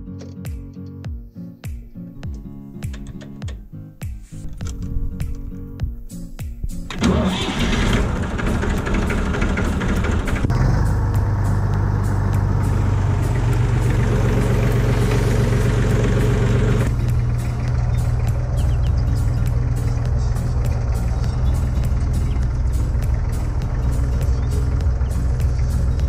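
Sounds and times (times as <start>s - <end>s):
starter motor cranking: 6.9s - 10.6s
diesel engine idling: 6.9s - 26.0s.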